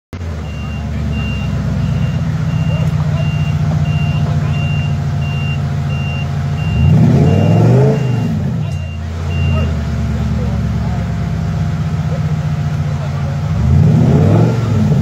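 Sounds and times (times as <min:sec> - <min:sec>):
engine running and revving: 0:00.2 - 0:15.0
high electronic beeps: 0:00.4 - 0:09.8.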